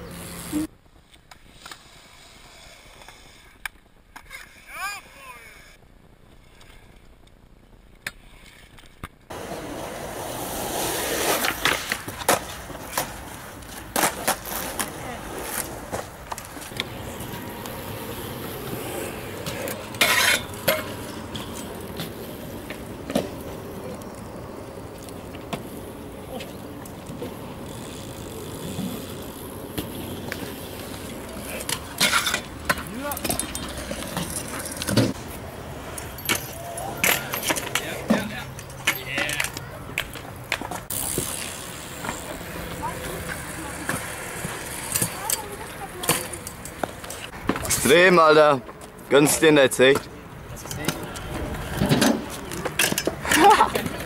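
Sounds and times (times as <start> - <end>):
skateboard wheels rolling on concrete: 0.0 - 54.0
scooter scraping on metal rail: 8.3 - 23.8, 28.4 - 39.0.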